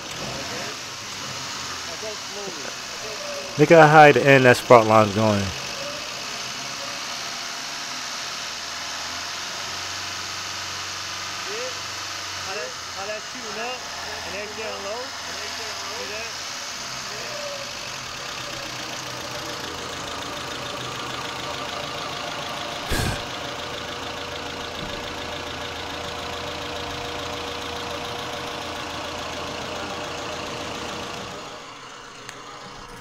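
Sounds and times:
engine running with misfire: 0.0s - 33.0s.

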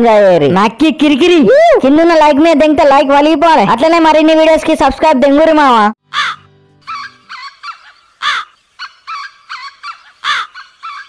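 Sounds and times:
crow cawing: 6.1s - 11.0s.

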